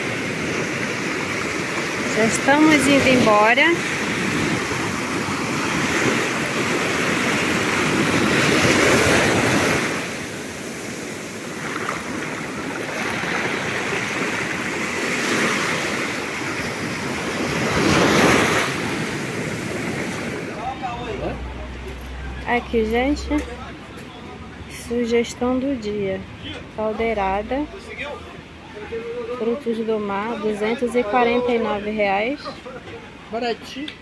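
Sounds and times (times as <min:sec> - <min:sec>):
surf breaking on beach: 0:00.0 - 0:21.0.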